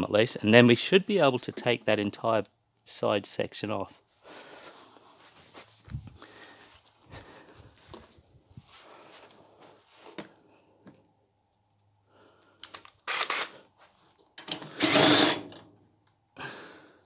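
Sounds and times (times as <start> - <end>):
cordless drill running: 14.7 - 15.5.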